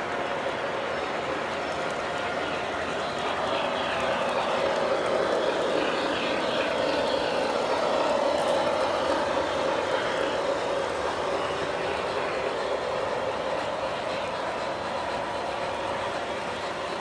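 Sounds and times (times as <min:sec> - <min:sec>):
model train rumbling past: 0:00.0 - 0:17.0.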